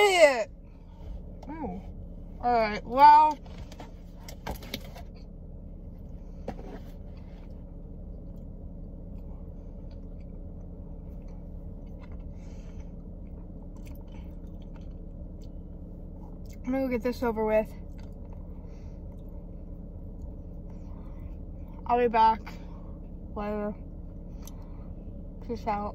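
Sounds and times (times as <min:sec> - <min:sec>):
steady low car cabin hum: 0:00.0 - 0:25.9
person chewing snack: 0:09.1 - 0:16.6.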